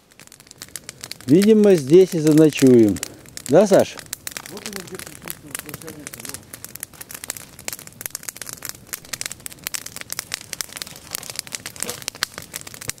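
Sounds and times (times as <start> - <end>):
campfire crackling and popping: 0.0 - 13.0.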